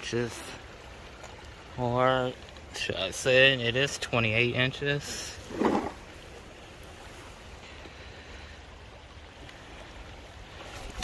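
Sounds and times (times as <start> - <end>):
river water flowing: 0.0 - 11.0.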